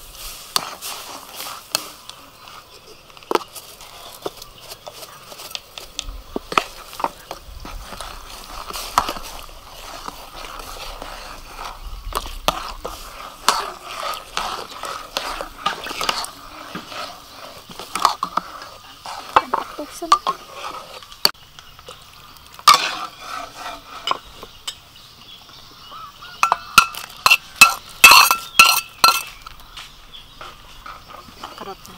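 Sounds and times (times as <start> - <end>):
faint hiss: 0.0 - 22.5
metal ladle scraping a wok: 6.5 - 21.2, 22.6 - 24.8, 26.4 - 29.5.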